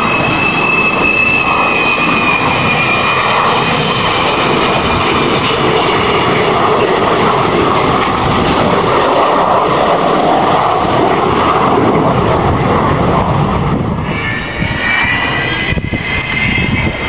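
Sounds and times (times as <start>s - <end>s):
jet aircraft rumble flying past: 0.0s - 17.0s.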